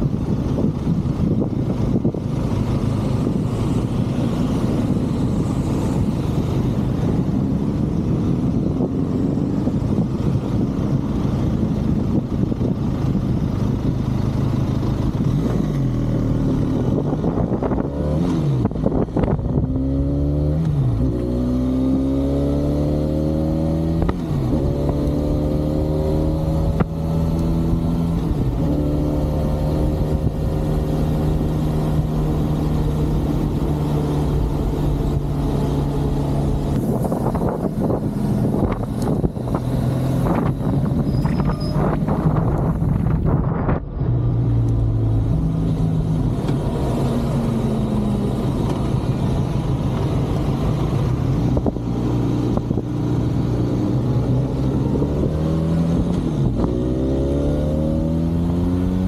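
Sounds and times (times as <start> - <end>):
wind noise: 0.0 - 59.0
motorcycle engine revving: 14.9 - 59.0.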